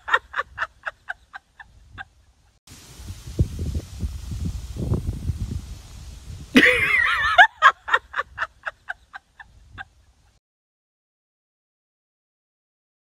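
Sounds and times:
woman laughing: 0.0 - 2.3, 6.5 - 10.3
low rumbling on microphone: 2.8 - 6.6.

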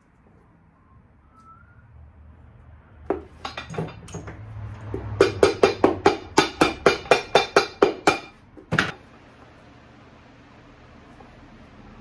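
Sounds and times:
hammer tapping a boot: 3.1 - 9.0.

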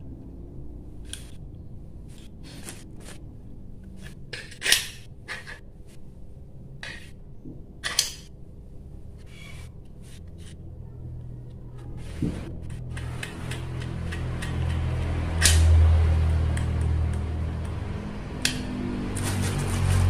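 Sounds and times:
plastic parts clicking and tapping: 12.6 - 17.8.

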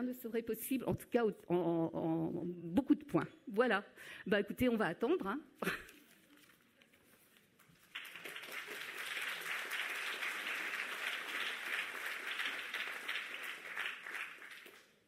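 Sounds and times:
audience applauding: 7.8 - 15.0.

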